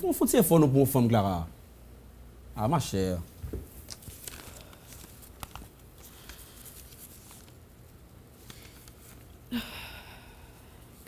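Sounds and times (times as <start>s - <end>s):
papers rustling: 3.3s - 9.4s
person sighing: 9.5s - 10.8s.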